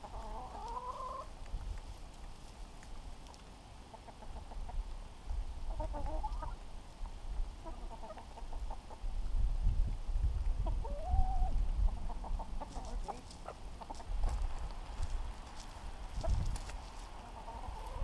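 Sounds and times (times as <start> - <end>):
hens clucking: 0.0 - 1.3, 3.8 - 4.9, 5.6 - 9.1, 10.5 - 18.0.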